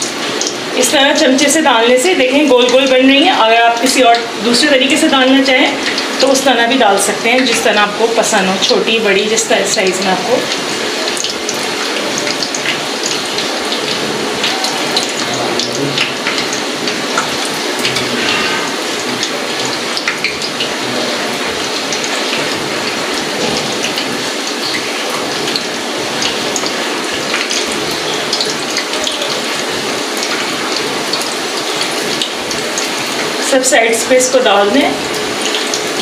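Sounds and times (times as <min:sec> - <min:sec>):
fritters deep-frying in hot oil: 0:00.0 - 0:36.0.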